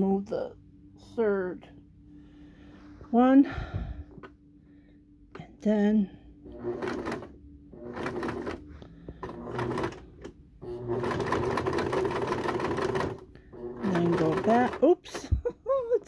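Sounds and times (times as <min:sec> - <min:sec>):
sewing machine stitching: 0:06.5 - 0:14.9.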